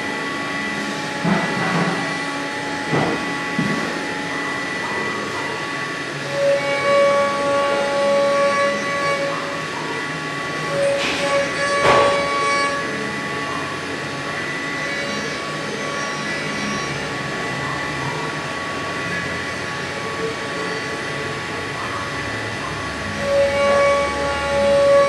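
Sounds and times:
router spindle whine: 0:00.0 - 0:25.0
end mill cutting plastic: 0:10.7 - 0:13.0.

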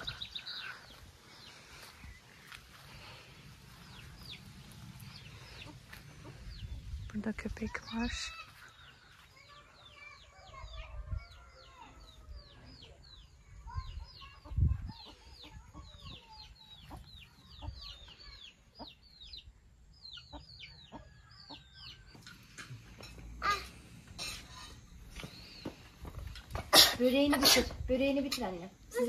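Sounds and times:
chicks peeping: 0:00.0 - 0:23.4
chickens clucking: 0:03.6 - 0:07.0, 0:13.8 - 0:19.5, 0:20.1 - 0:26.7.

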